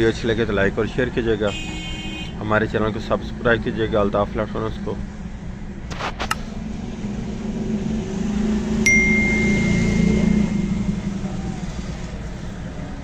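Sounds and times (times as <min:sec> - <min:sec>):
electronic bell ding: 0:08.8 - 0:11.1.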